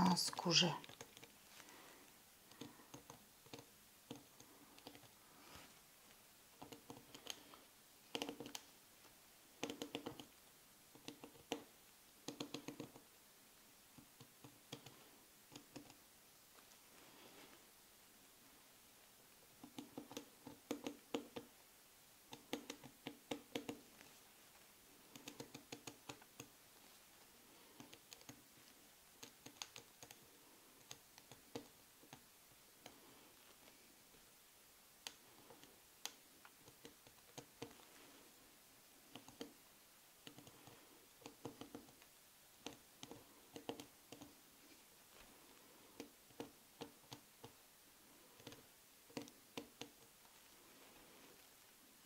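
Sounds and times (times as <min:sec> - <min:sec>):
pen tapping and scratching on leather: 0:02.5 - 0:05.2, 0:06.6 - 0:07.5, 0:08.1 - 0:08.7, 0:09.6 - 0:13.1, 0:19.6 - 0:21.5, 0:22.3 - 0:24.0, 0:40.2 - 0:44.4.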